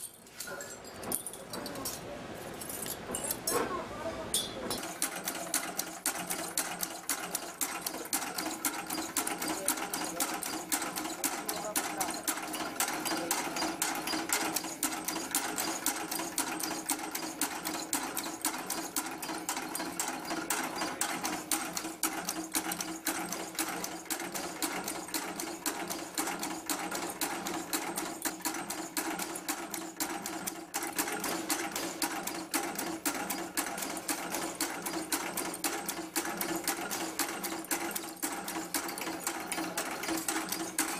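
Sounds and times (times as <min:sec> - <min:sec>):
machine clattering clicks: 0:04.6 - 0:40.9.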